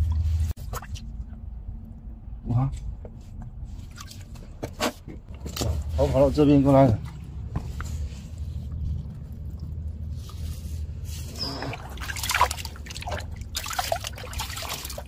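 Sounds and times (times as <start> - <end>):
steady low rumble: 0.0 - 14.7
water splashing in rock pool: 11.7 - 15.0.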